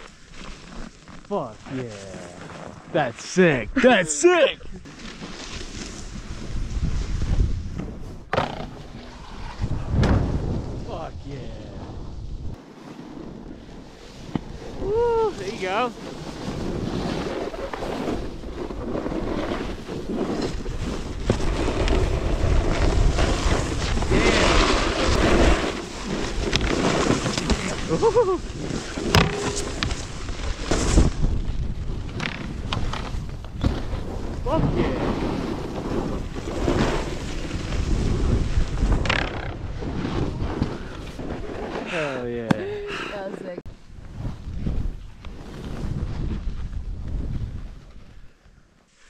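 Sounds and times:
skis sliding over snow: 0.0s - 8.2s, 12.6s - 39.0s, 44.0s - 48.3s
wind rushing over microphone: 6.0s - 12.6s, 13.2s - 41.7s, 43.7s - 48.3s.

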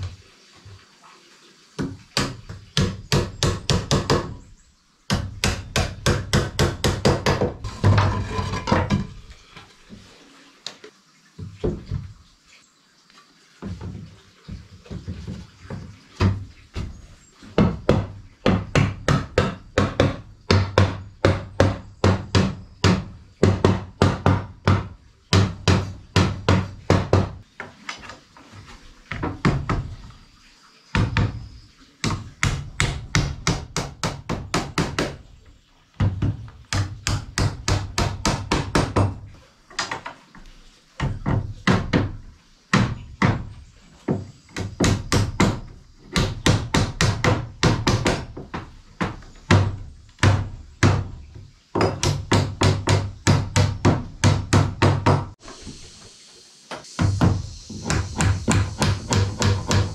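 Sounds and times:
hammer striking wood: 1.8s - 4.4s, 5.1s - 9.1s, 17.6s - 27.4s, 32.0s - 35.2s, 36.0s - 39.2s, 46.2s - 51.2s, 51.8s - 55.4s, 57.0s - 59.9s.

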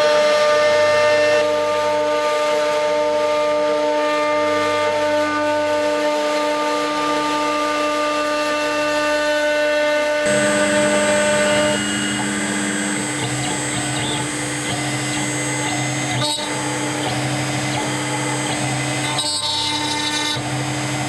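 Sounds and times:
router spindle whine: 10.0s - 21.0s
cutter milling wood: 10.2s - 21.0s.

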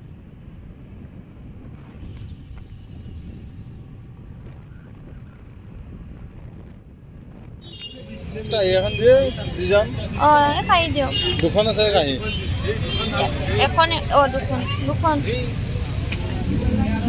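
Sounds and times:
wind buffeting microphone: 0.0s - 11.8s
vehicle rumble: 0.0s - 17.0s.

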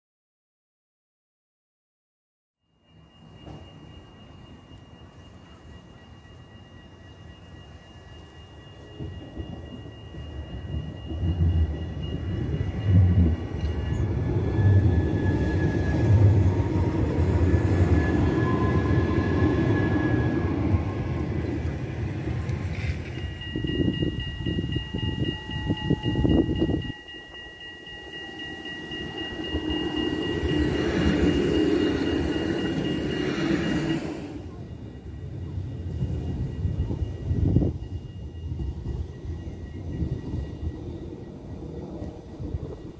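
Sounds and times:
tram wheels rumbling on rails: 2.8s - 42.9s
tram wheels knocking: 8.9s - 35.0s.

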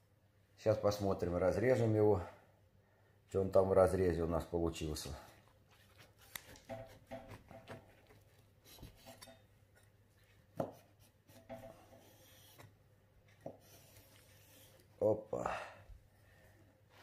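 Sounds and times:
knife sawing through pie crust: 13.4s - 14.9s.

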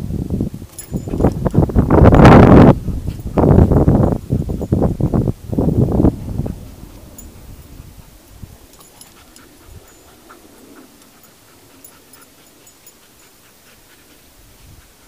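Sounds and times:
dog panting: 0.8s - 15.0s.

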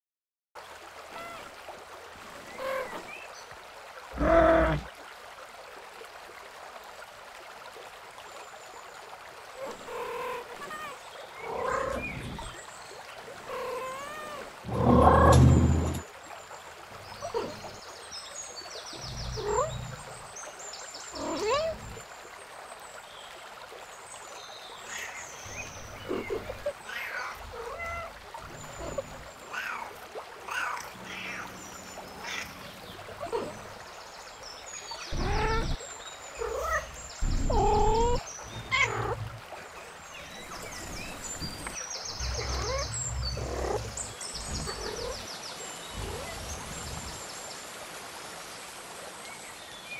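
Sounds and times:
cats meowing: 26.9s - 28.1s, 35.1s - 35.8s, 36.4s - 39.2s, 42.3s - 42.8s.

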